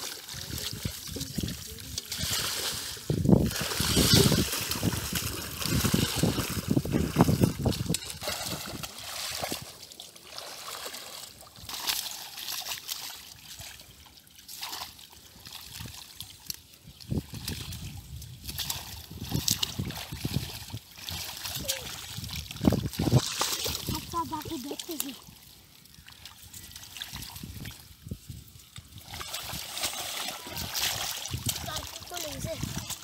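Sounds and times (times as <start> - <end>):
muddy water splashing: 0.0 - 33.0.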